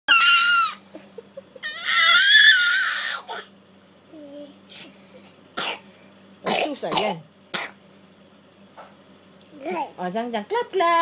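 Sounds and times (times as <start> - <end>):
toddler squealing: 0.1 - 0.8, 1.6 - 3.5.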